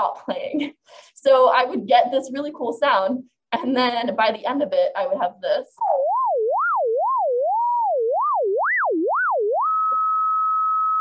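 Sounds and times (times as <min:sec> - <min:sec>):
sine wave tone swooping: 0:05.8 - 0:11.0.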